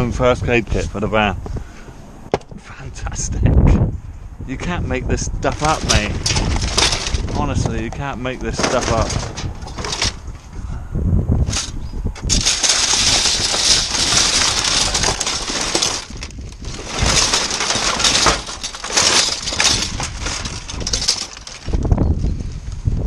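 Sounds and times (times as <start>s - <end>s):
plastic bags crinkling: 5.6s - 7.5s, 12.3s - 21.9s.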